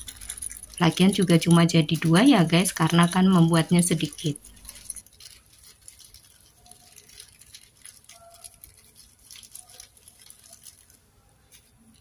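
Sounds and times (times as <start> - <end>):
paper rustling and crinkling: 0.0 - 12.0.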